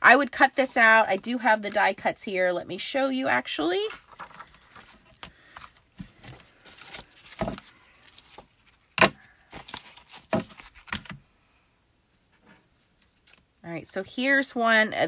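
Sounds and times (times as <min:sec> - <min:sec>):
plastic packaging rustling: 0:03.8 - 0:11.2.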